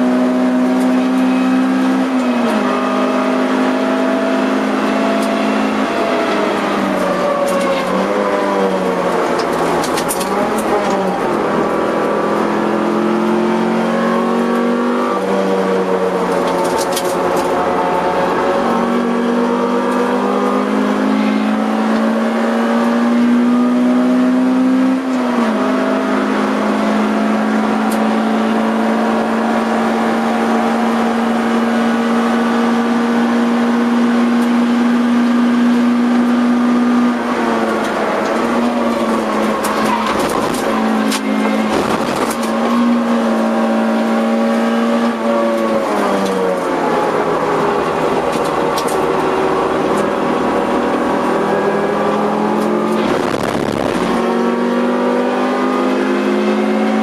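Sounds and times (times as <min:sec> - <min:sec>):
car engine under hard driving: 0:00.0 - 0:57.0.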